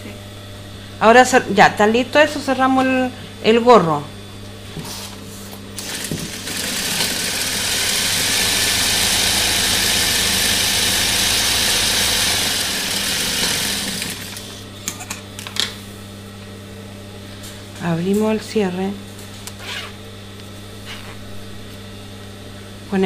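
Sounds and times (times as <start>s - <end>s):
motor humming: 5.7s - 14.8s
sewing machine stitching: 5.8s - 14.5s.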